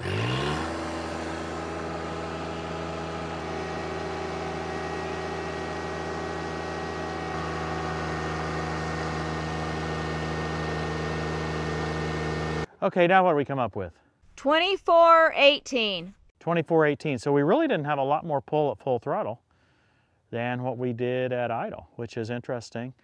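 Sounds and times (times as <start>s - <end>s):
tractor diesel engine revving: 0.0s - 12.7s.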